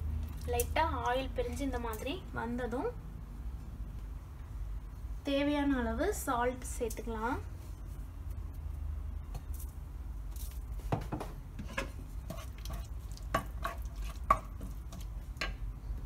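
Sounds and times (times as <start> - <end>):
low steady hum: 0.0 - 16.0
wooden spoon scraping pot: 11.5 - 15.6.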